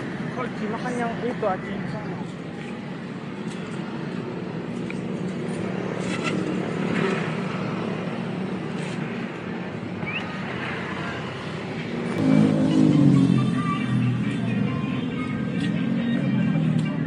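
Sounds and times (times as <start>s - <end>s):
cars passing on road: 0.0s - 17.0s.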